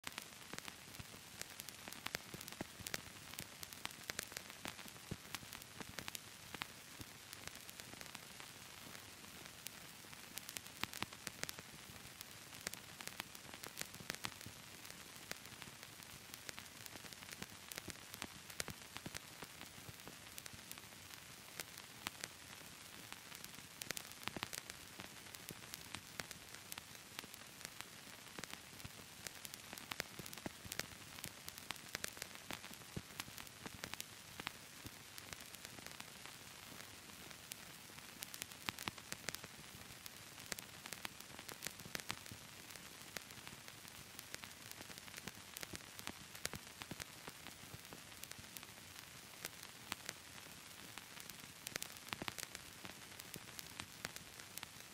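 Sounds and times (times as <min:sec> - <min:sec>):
faint tape hiss: 0:00.0 - 0:54.9.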